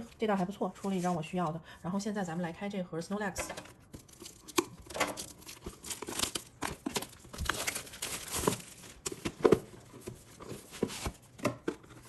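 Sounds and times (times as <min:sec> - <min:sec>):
scissors cutting plastic wrap: 0:04.0 - 0:08.8
plastic wrap crinkling: 0:04.0 - 0:11.3.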